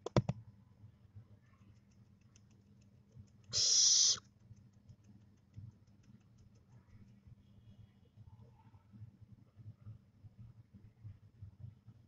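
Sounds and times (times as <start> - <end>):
sharp clicks: 1.8 - 7.2
owlet hissing screech: 3.6 - 4.2.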